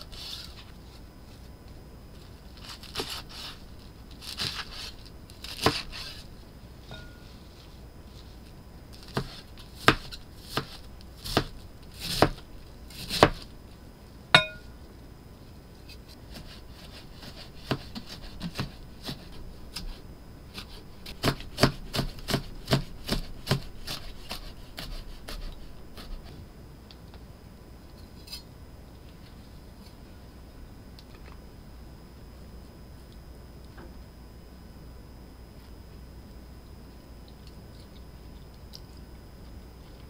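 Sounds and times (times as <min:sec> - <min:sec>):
knife chopping on cutting board: 0:05.5 - 0:06.2, 0:09.1 - 0:12.4, 0:13.0 - 0:13.4, 0:16.3 - 0:20.0, 0:20.6 - 0:26.1
ringing clink: 0:06.9 - 0:07.2, 0:14.4 - 0:14.7.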